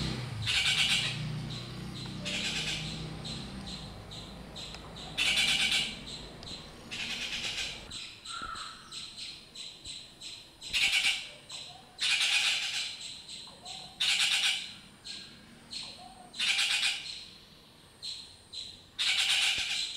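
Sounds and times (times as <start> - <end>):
birds squawking harshly: 0.0 - 9.3, 10.6 - 17.2, 19.0 - 19.9
bird chattering notes: 0.5 - 9.1.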